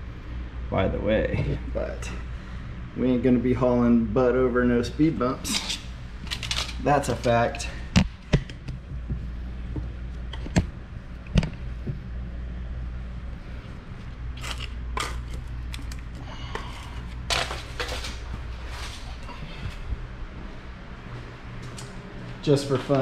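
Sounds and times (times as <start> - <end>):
steady low hum: 0.0 - 23.0
rustling and scuffing: 16.7 - 23.0.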